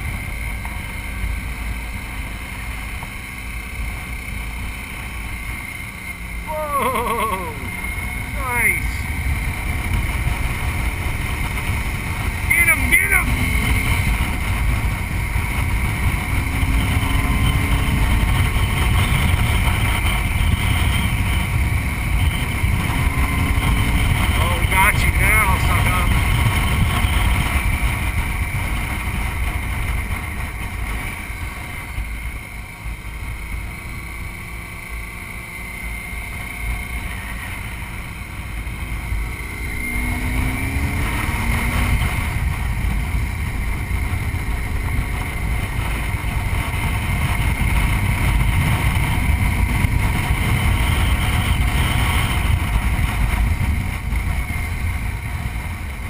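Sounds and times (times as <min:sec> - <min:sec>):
motorcycle engine running: 0:00.0 - 0:56.0
wind noise on microphone: 0:08.2 - 0:33.7, 0:37.1 - 0:56.0.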